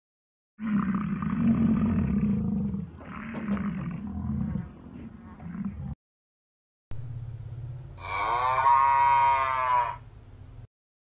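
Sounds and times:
bull bellowing: 0:08.0 - 0:10.1.

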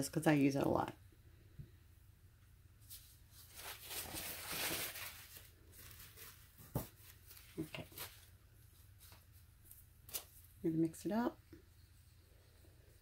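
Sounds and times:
paper towel rustling: 0:02.8 - 0:10.4.

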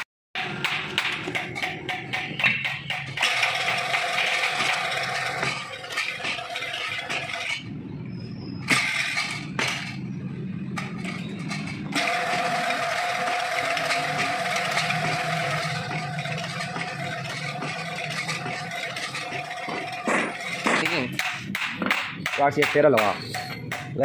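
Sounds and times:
mechanical background noise: 0:00.4 - 0:24.0.

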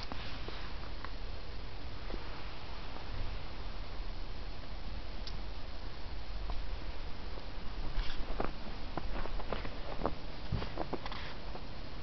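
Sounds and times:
background hiss and rumble: 0:00.0 - 0:12.0
faint soft clicks: 0:05.2 - 0:05.4.

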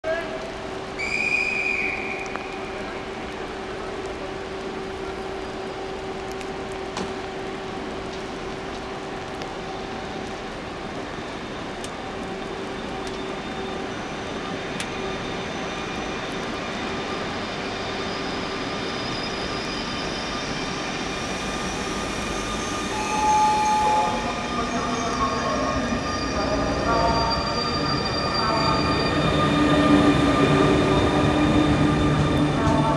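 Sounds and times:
electric locomotive humming: 0:00.4 - 0:32.9
loud high tone: 0:22.6 - 0:29.3.

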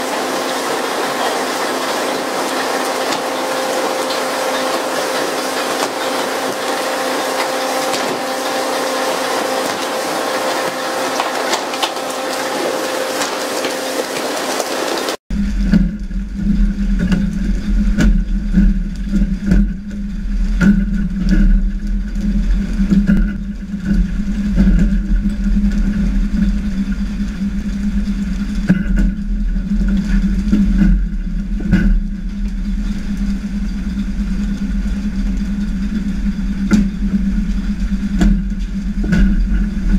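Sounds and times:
boat engine humming: 0:00.0 - 0:39.9
deep engine drone: 0:00.0 - 0:39.9
wind and sea noise: 0:00.0 - 0:39.9.

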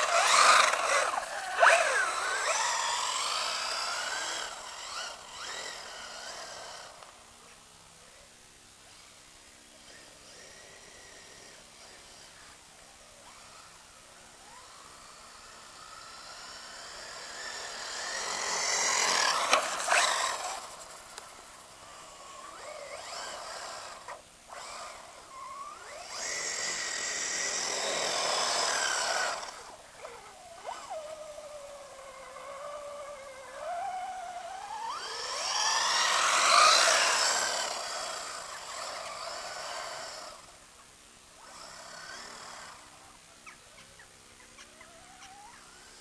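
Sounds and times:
tyres churning through snow: 0:00.0 - 0:07.0, 0:14.5 - 0:40.6
electric motor whining: 0:00.0 - 0:07.2, 0:13.2 - 0:40.6.

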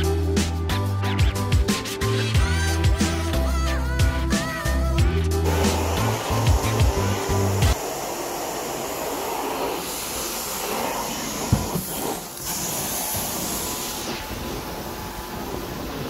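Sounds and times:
vacuum suction with hiss: 0:05.4 - 0:16.0.

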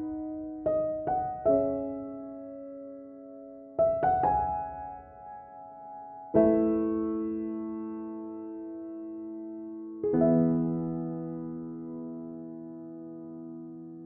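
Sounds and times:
soft piano notes: 0:00.0 - 0:14.0.

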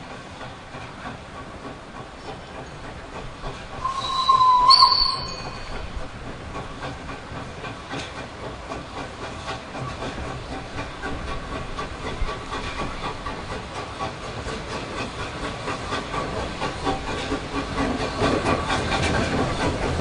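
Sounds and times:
steam hissing: 0:00.1 - 0:20.0
steam whistle blast: 0:03.8 - 0:05.7.

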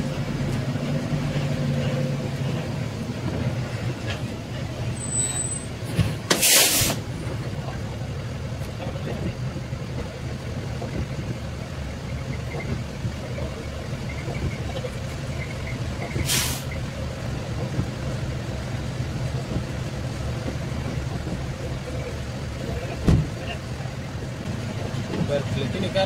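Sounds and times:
air brakes hissing: 0:06.3 - 0:07.1, 0:16.1 - 0:16.8.

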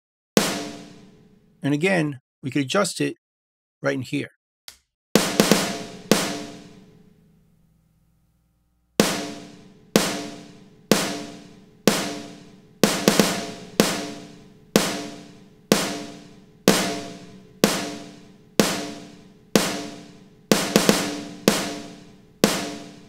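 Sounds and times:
snare drum hits: 0:00.4 - 0:01.4, 0:05.2 - 0:07.0, 0:09.0 - 0:23.0.

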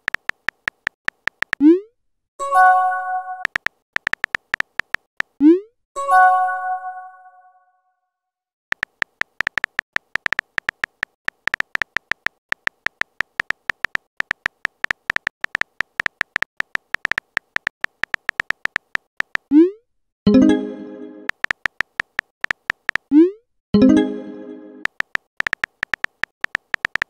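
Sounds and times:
phone keyboard typing clicks: 0:00.0 - 0:01.7, 0:03.4 - 0:05.4, 0:08.7 - 0:19.6, 0:21.3 - 0:23.2, 0:24.8 - 0:27.0.

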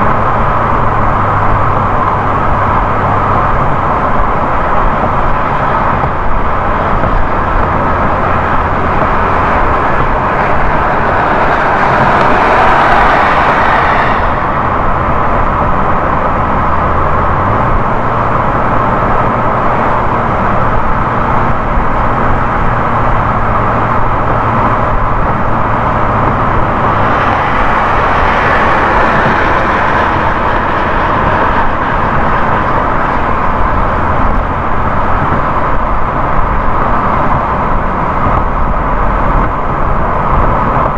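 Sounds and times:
car engine hum: 0:00.0 - 0:40.9
tyre and road noise: 0:00.0 - 0:40.9.

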